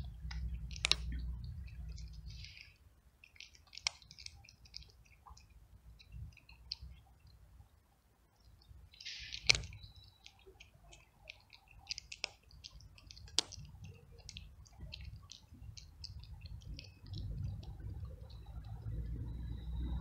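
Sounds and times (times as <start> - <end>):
cat crunching dry kibble: 0.0 - 7.0, 9.0 - 19.0.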